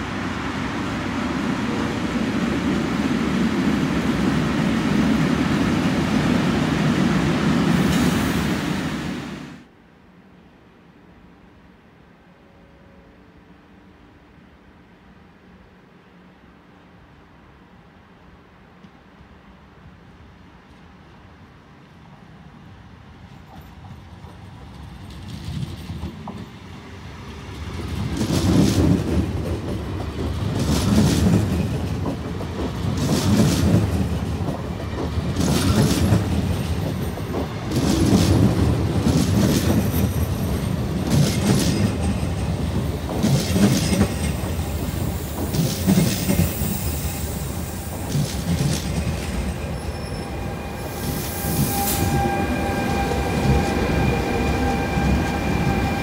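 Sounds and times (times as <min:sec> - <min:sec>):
train wheels clattering over joints: 0:27.8 - 0:47.0
locomotive whine: 0:39.7 - 0:56.0
wheel squeal: 0:49.4 - 0:56.0.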